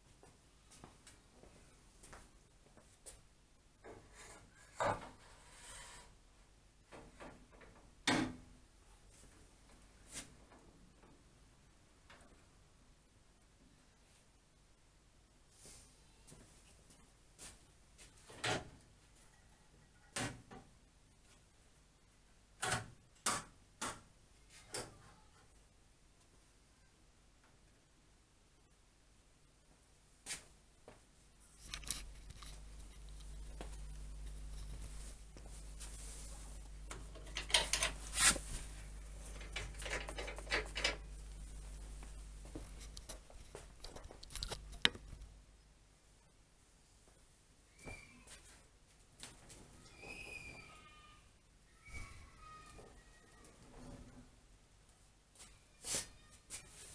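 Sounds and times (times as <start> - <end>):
steady low hum: 31.2 - 45.9.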